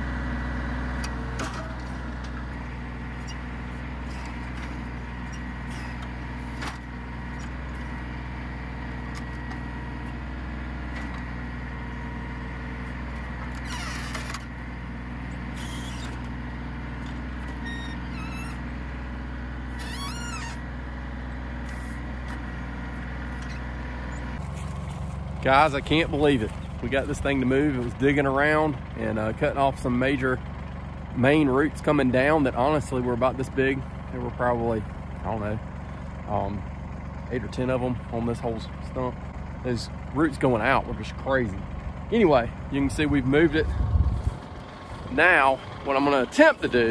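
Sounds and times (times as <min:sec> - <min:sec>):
tractor diesel engine running: 0:00.0 - 0:46.9
rising squeal: 0:17.6 - 0:18.6, 0:19.7 - 0:20.6.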